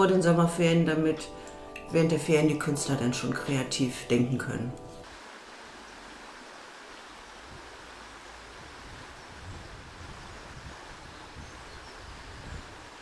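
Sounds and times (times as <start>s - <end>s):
rushing woodland ambience: 0.0s - 13.0s
wind bumps on microphone: 8.5s - 13.0s.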